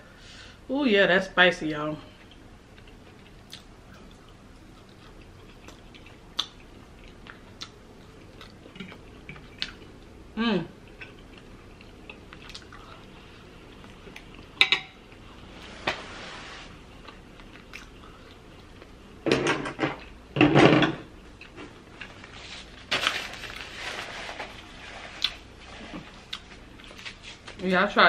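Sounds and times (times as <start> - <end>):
chewing and mouth noise: 2.2 - 10.1, 10.8 - 15.3, 17.0 - 19.0, 26.0 - 27.4.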